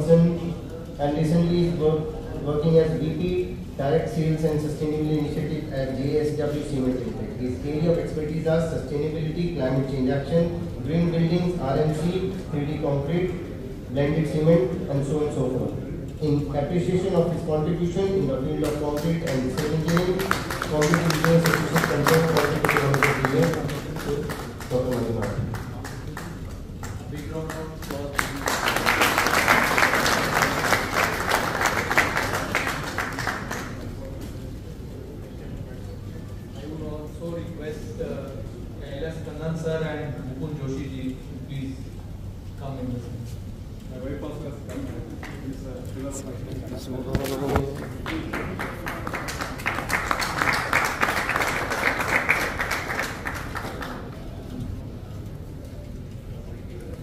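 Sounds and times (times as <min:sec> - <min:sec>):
audience applauding: 0:18.6 - 0:34.0, 0:47.2 - 0:54.4.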